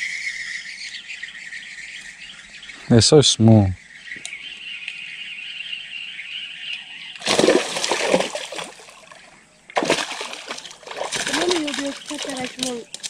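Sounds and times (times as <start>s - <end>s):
water splashing: 7.2s - 13.0s.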